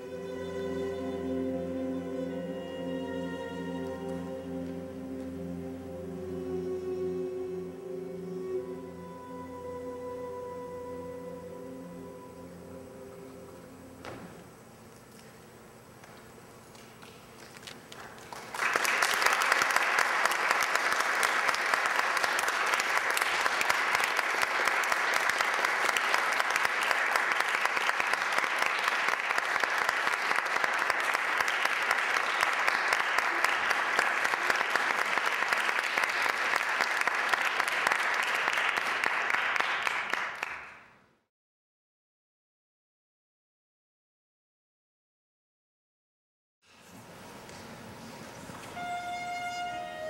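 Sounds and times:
audience applauding: 16.7 - 41.0.

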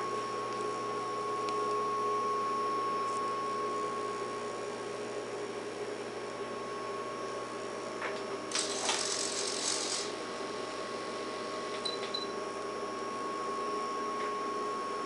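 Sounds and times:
steady high hum: 0.0 - 15.0
servo buzzing: 8.5 - 10.2.

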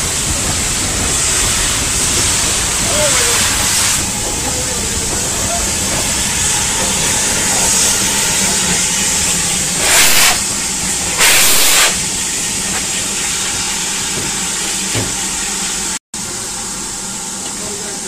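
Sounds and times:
steam blasts: 0.0 - 15.2
steam locomotive hissing: 0.0 - 18.0.

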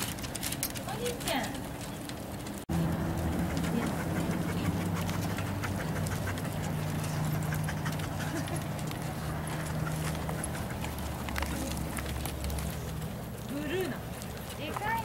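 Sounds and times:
dog claws clicking on wood: 0.0 - 15.0.

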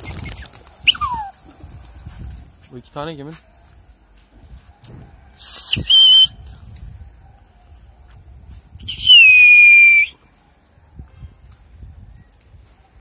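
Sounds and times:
shrill human whistles: 0.9 - 1.3, 5.4 - 6.5, 8.8 - 10.2.

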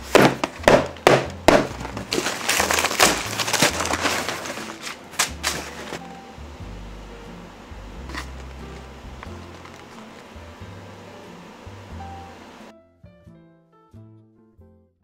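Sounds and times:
packing tape ripping: 0.0 - 6.0
cardboard and paper rustling: 0.0 - 6.1, 8.1 - 10.3.

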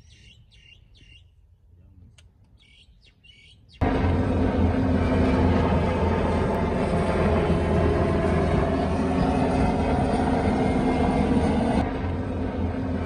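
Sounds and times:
helicopter rotor drone: 3.8 - 13.0.

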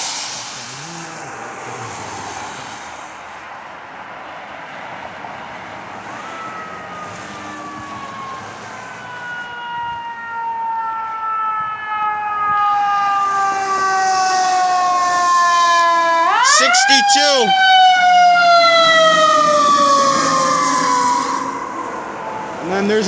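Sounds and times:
street traffic: 0.0 - 23.0
fire engine siren wailing: 5.4 - 23.0.

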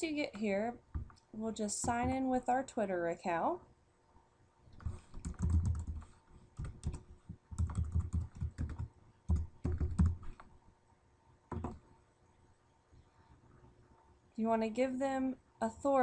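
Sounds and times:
typing on computer keyboard: 4.8 - 10.4.

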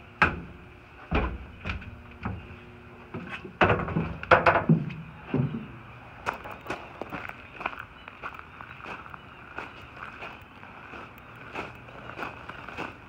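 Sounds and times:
footsteps on gravel: 5.4 - 13.0.

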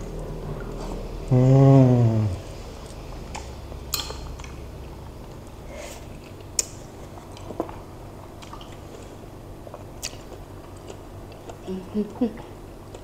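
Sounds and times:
soft chewing: 2.7 - 13.0.

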